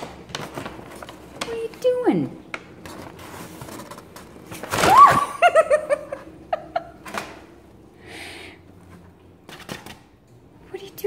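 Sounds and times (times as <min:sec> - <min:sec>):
paper bag rustling: 0:00.0 - 0:06.1.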